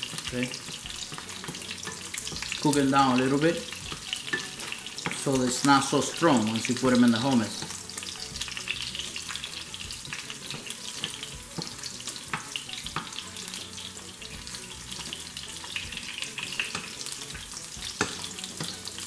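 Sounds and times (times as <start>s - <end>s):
garlic sizzling in oil: 0.0s - 19.0s
wooden spoon knocking on pan: 3.8s - 5.4s, 9.9s - 13.2s, 15.9s - 18.8s.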